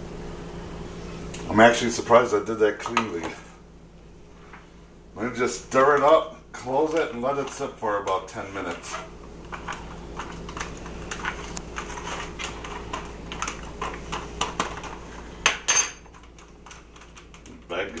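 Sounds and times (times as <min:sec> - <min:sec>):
spoon scraping in foil pouch: 0:10.6 - 0:13.1.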